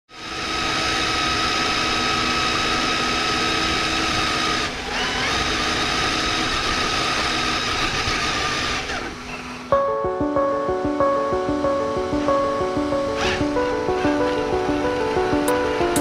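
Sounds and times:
electric motor and gears whining: 0.1 - 9.7.

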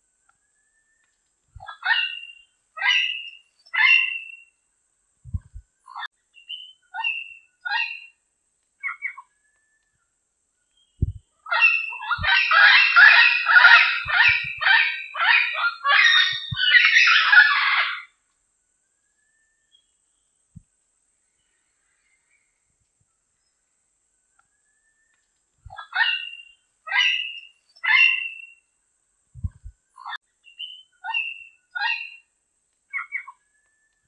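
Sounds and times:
parrot squawking and chattering: 1.6 - 4.3, 11.5 - 18.1, 25.7 - 28.4, 31.0 - 32.2.

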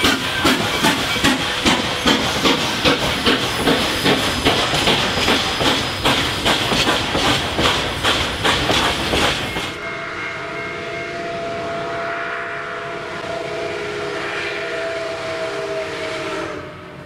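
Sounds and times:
steam hissing: 0.0 - 9.8
steam locomotive exhaust chuffs: 0.0 - 17.0.

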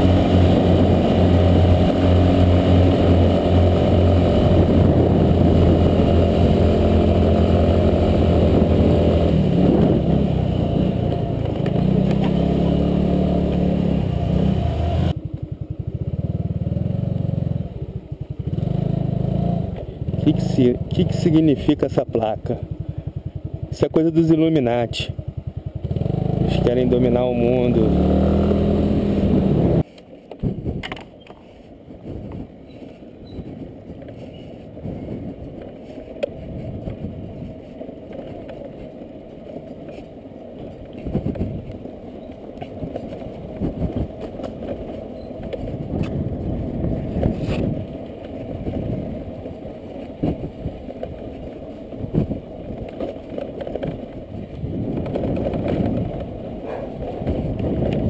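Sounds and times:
wind buffeting microphone: 0.0 - 12.6, 30.4 - 31.0, 31.8 - 40.0, 40.6 - 58.0
scooter engine and tyre rumble: 0.0 - 58.0.

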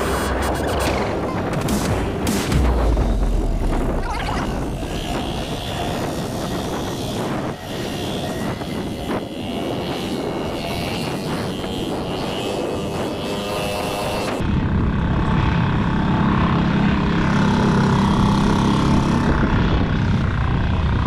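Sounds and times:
outboard motor running: 0.0 - 14.4
wind: 0.0 - 21.0.

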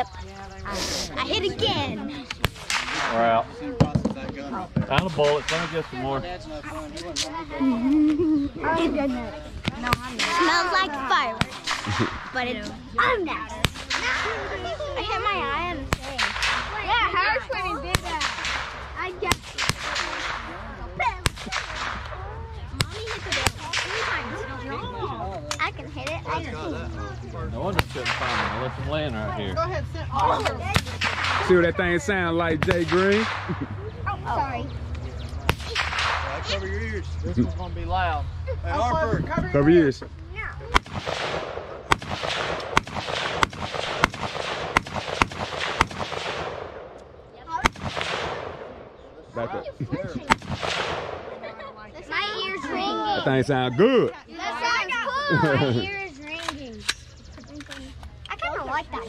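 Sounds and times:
gunshot cracks: 2.4 - 3.4, 27.8 - 28.6, 30.7 - 31.6, 35.5 - 36.4, 40.7 - 46.8, 47.6 - 48.8, 50.3 - 51.4.

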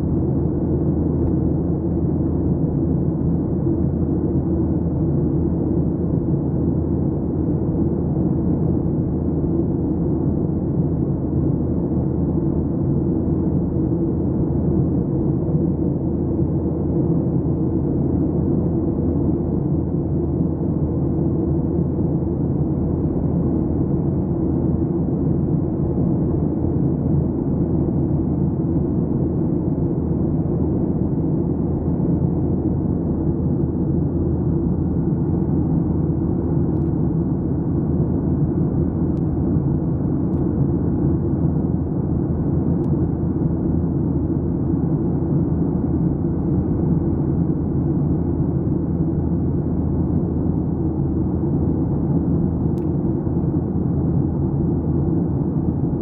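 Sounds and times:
airliner cabin engine rumble: 0.0 - 56.0.

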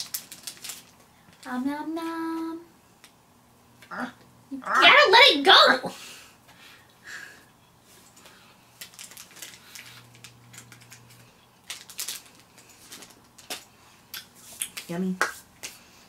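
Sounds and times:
plastic wrapper crinkling: 0.0 - 1.5, 8.7 - 13.7.

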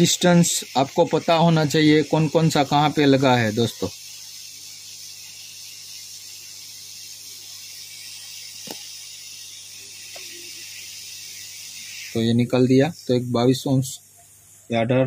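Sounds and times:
faint hiss: 0.0 - 15.0
small click: 8.6 - 8.8.

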